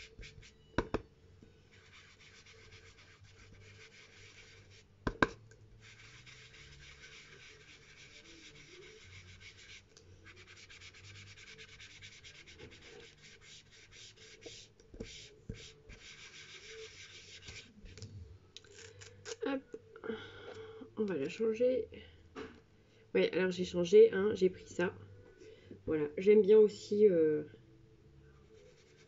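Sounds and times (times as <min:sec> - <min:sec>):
brush scrubbing over paper: 0:01.7 - 0:04.9, 0:05.8 - 0:18.0, 0:28.6 - 0:29.0.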